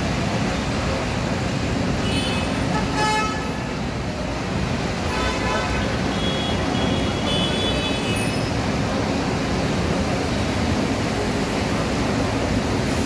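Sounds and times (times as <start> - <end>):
traffic on wet road: 0.0 - 13.0
vehicle horns: 2.0 - 3.6, 5.1 - 8.5.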